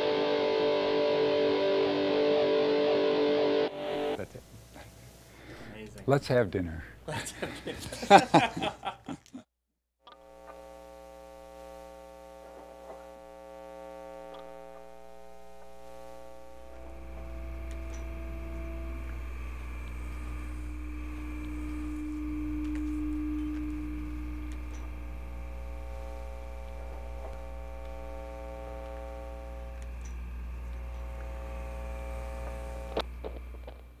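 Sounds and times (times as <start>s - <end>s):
amplifier mains hum: 10.1s - 34.0s.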